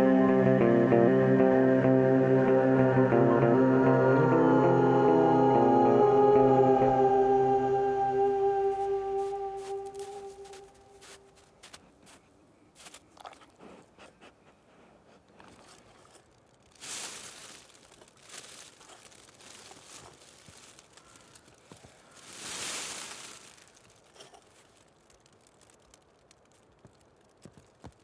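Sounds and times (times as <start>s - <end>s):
foil blanket crinkling: 8.7s - 12.2s, 15.3s - 28.0s.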